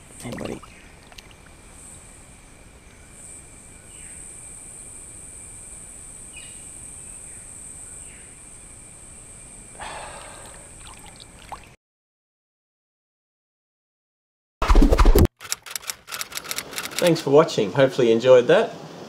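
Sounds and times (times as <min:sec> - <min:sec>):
insect drone: 0:00.0 - 0:11.8
water splash: 0:00.2 - 0:01.4, 0:10.4 - 0:11.8.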